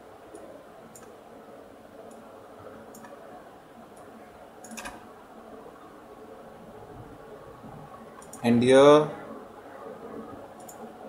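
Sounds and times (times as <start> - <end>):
faint room noise: 0.0 - 11.0
computer mouse clicks: 0.3 - 1.2, 2.0 - 2.2, 2.9 - 3.2, 3.9 - 5.0, 8.1 - 8.5, 10.6 - 10.9.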